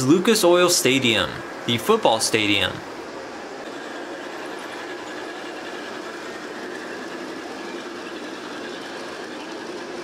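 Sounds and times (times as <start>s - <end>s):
model train motor whirring: 2.4s - 10.0s.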